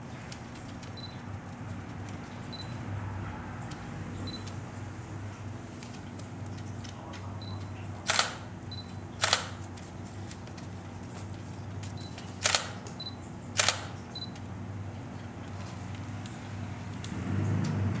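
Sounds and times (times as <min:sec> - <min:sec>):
camera shutter clack: 0:08.1 - 0:08.4, 0:09.2 - 0:09.6, 0:12.4 - 0:12.8, 0:13.6 - 0:14.0.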